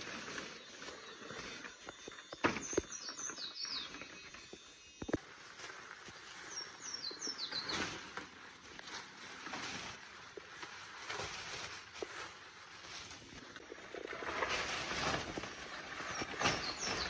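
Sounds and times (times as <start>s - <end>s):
rustling and crunching: 0.0s - 17.0s
bird chirping: 0.4s - 5.1s, 6.2s - 8.0s, 15.4s - 17.0s.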